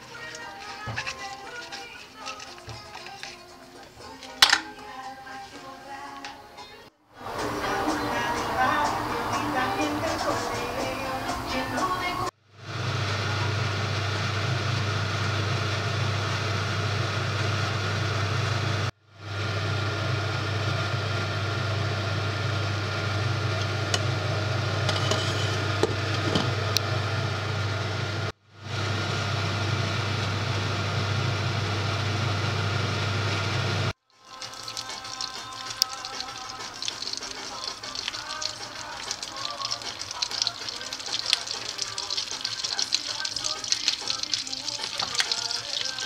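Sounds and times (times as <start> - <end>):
water boiling in a pot: 0.0 - 5.2, 7.2 - 46.0.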